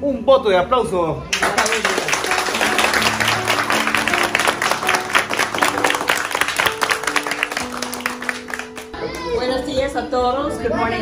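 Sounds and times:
people clapping: 0:01.3 - 0:09.4
music of held notes: 0:01.8 - 0:09.3.

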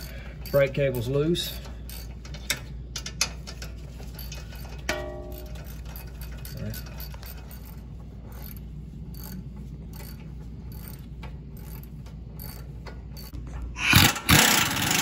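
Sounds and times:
hand ratchet clicking: 0:00.0 - 0:15.0
air impact wrench: 0:10.0 - 0:15.0.

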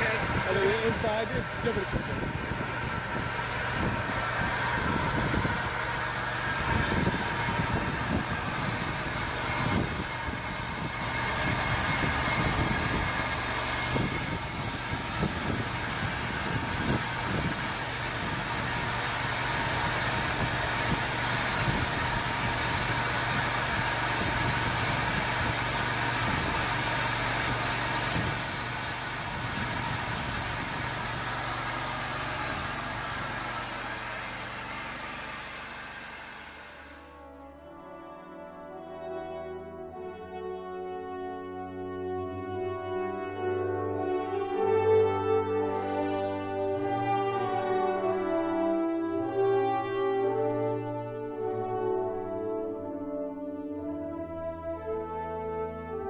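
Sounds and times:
sawmill petrol engine under load: 0:00.0 - 0:37.2.

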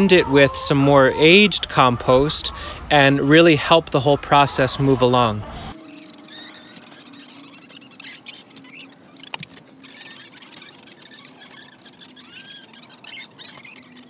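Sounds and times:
hens calling softly: 0:00.0 - 0:09.0.

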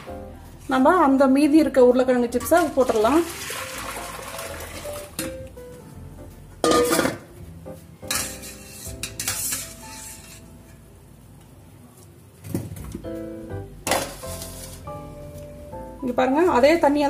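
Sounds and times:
soft background music: 0:00.0 - 0:17.0
metal bowls and pots clanking: 0:02.3 - 0:03.3, 0:06.6 - 0:07.3, 0:08.1 - 0:10.5.

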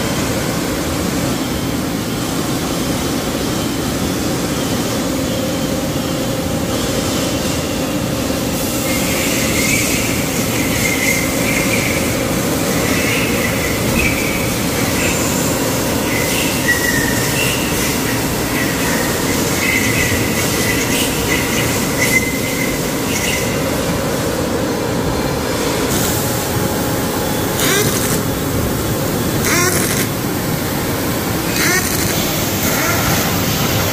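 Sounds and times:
machinery droning: 0:00.0 - 0:33.9
high-pitched squealing: 0:27.4 - 0:28.5, 0:29.2 - 0:30.2, 0:31.4 - 0:33.5.

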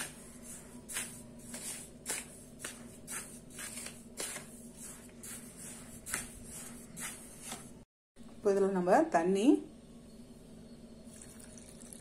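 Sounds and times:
spatula scraping dry flour mix: 0:00.0 - 0:07.8.

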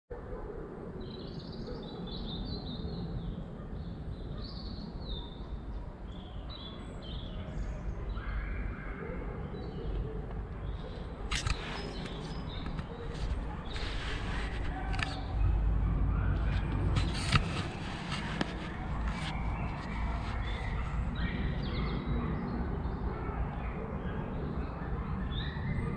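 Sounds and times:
small birds chirping: 0:01.0 - 0:25.9
handling clicks and rustles: 0:10.2 - 0:15.6, 0:16.3 - 0:21.0.

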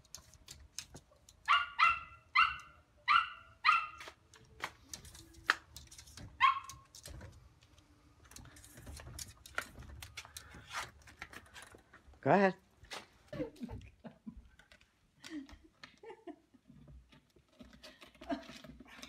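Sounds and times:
paws tapping on glass door: 0:00.0 - 0:02.7, 0:03.7 - 0:12.1
small dog yapping: 0:01.5 - 0:04.2, 0:06.4 - 0:06.9.

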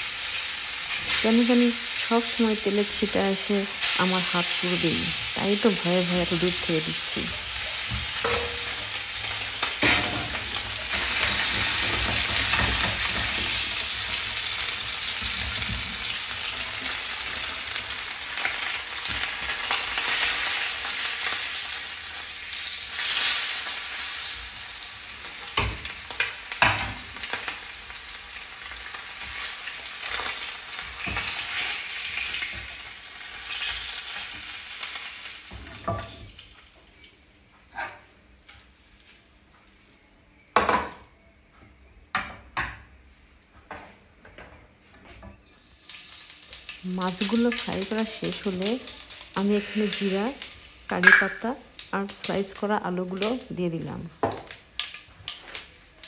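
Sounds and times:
fish sizzling in frying pan: 0:00.0 - 0:39.9, 0:45.5 - 0:56.0.

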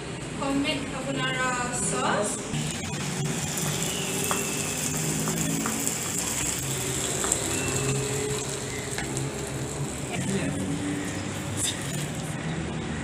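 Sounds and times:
food sizzling in a frying pan: 0:02.6 - 0:12.3.

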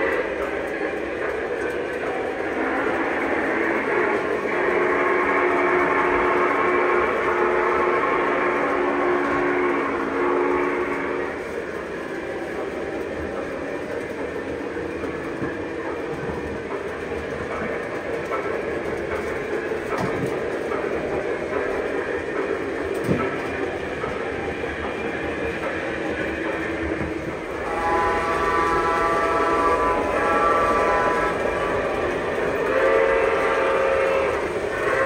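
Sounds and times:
model train rumbling on track: 0:00.0 - 0:35.0
train whistle chord: 0:02.6 - 0:11.4, 0:27.6 - 0:35.0.

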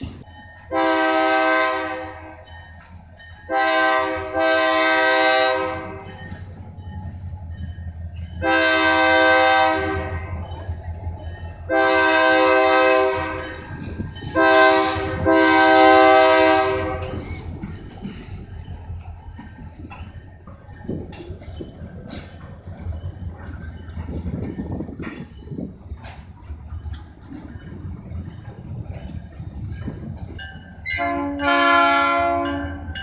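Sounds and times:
locomotive air horn blasts: 0:00.7 - 0:02.4, 0:03.5 - 0:06.1, 0:08.4 - 0:10.4, 0:11.7 - 0:13.6, 0:14.3 - 0:17.2, 0:30.9 - 0:32.8.

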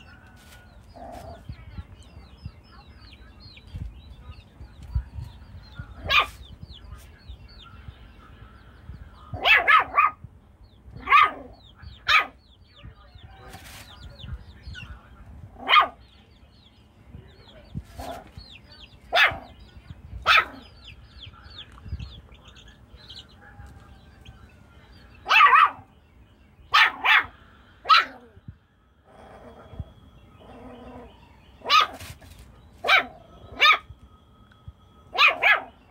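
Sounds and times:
chicks peeping: 0:00.0 - 0:34.0
puppy barking: 0:06.0 - 0:06.5, 0:09.3 - 0:10.2, 0:11.0 - 0:12.4, 0:15.6 - 0:16.0, 0:19.1 - 0:19.6, 0:20.2 - 0:20.8, 0:25.2 - 0:25.9, 0:26.7 - 0:28.4, 0:30.4 - 0:32.2, 0:32.8 - 0:33.9, 0:35.1 - 0:35.8.

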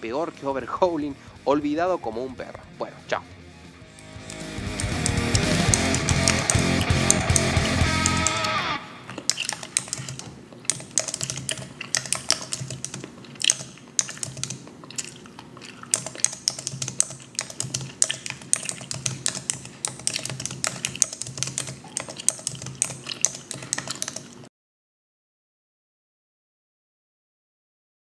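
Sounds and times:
fast typing on keyboard: 0:04.2 - 0:08.6, 0:09.2 - 0:24.5
fingernails clicking on keys: 0:04.2 - 0:24.4.

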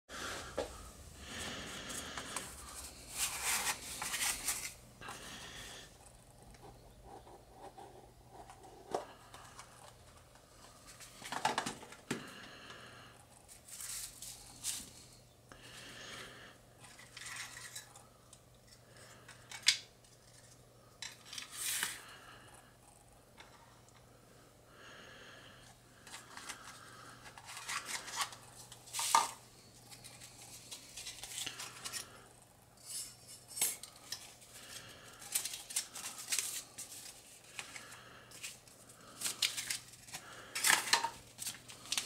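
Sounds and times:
plastic parts clicking against box: 0:39.2 - 0:42.0.

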